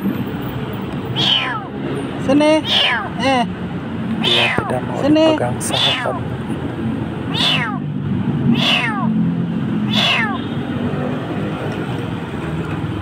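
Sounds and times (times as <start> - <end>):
kitten meowing shrilly: 1.1 - 1.8, 2.5 - 3.2, 4.2 - 4.9, 5.6 - 6.2, 7.3 - 7.9, 8.5 - 9.2, 9.9 - 10.6.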